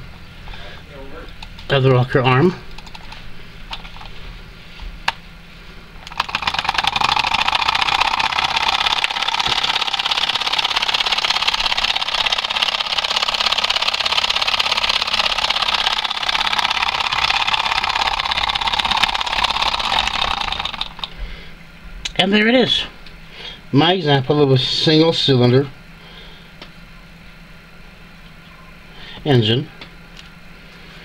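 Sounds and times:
small engine rapid clatter: 6.0 - 21.2.

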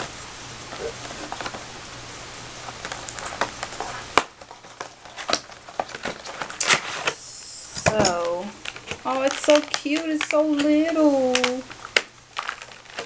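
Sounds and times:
wrapping crinkling: 2.5 - 13.0
wrapping sharp snap: 2.8 - 13.0.

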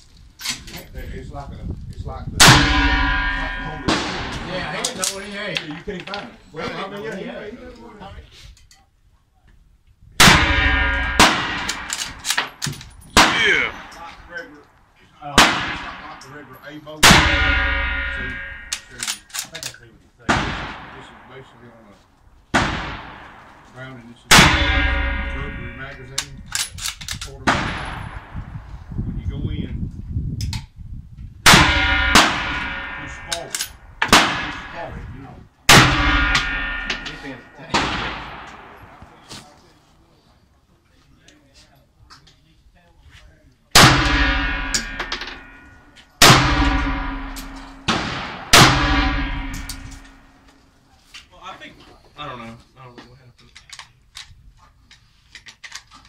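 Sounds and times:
rifle shots with metallic ringing: 2.4 - 5.2, 10.2 - 14.1, 15.4 - 19.3, 24.3 - 26.4, 27.5 - 28.4, 31.5 - 34.9, 35.7 - 39.0, 43.8 - 50.4
faint distant gunshots: 43.8 - 50.4.

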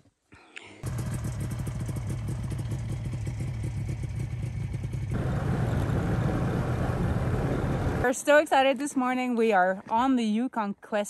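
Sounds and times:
snowmobile engine running: 0.8 - 8.1.

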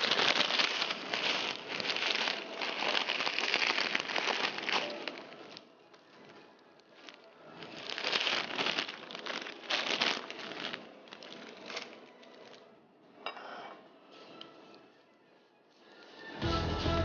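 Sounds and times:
noodles crackling in hot oil: 0.0 - 12.7.

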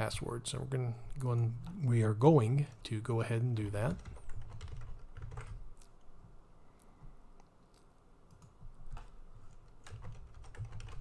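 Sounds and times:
keystrokes on computer keyboard: 3.9 - 6.1, 7.4 - 11.0.

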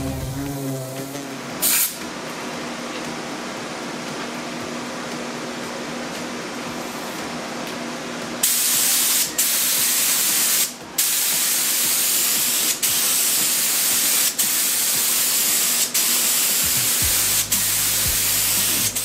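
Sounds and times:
low hum: 0.0 - 1.6
spray gun hissing: 0.0 - 2.0, 8.4 - 19.0.

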